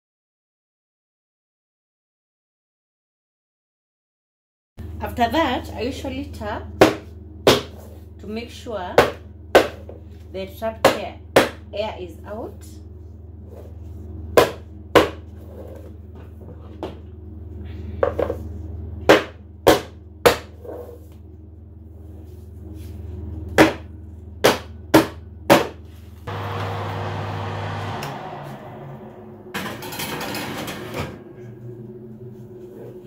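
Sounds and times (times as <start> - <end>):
rushing noise: 26.3 - 30.8.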